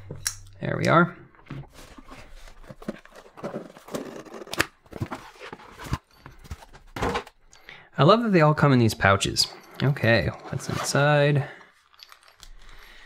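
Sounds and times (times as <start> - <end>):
cardboard flaps rustling and scraping: 1.5 - 7.3.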